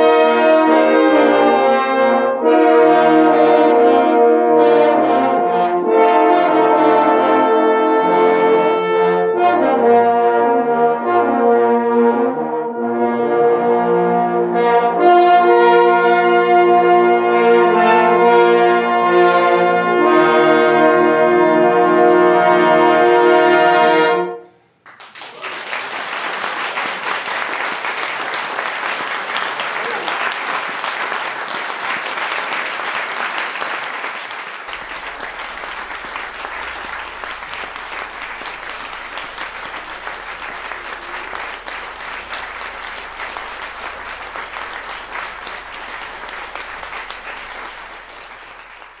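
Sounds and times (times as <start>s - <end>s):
audience applauding: 0.0s - 1.4s, 24.8s - 49.0s
french horn ensemble chord: 0.0s - 24.4s, 34.2s - 49.0s.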